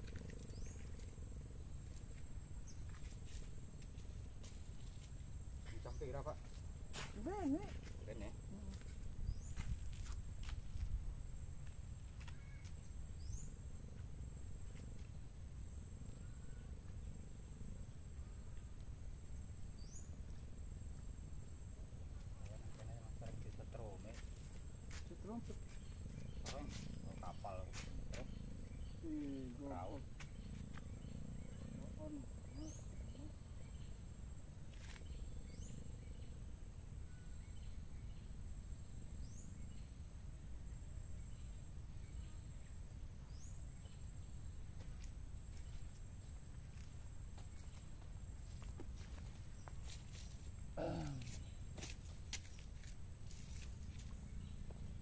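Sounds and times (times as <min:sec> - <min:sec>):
low rumble of wind: 0:00.0 - 0:55.0
insects calling high-pitched: 0:22.5 - 0:34.0.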